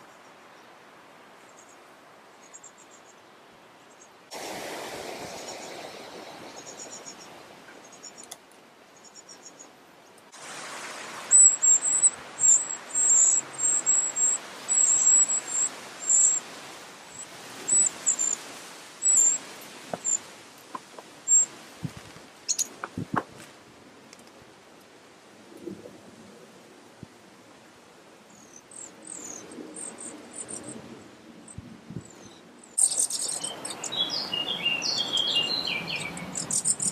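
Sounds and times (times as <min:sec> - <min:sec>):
nestlings begging squeaks: 0:11.3 - 0:16.4, 0:32.8 - 0:34.0, 0:36.0 - 0:36.9.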